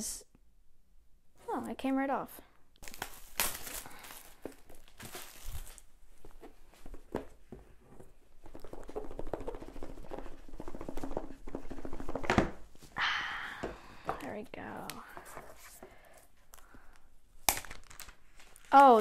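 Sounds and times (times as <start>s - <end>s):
plastic wrap tearing: 2.8s - 5.9s, 17.5s - 19.0s.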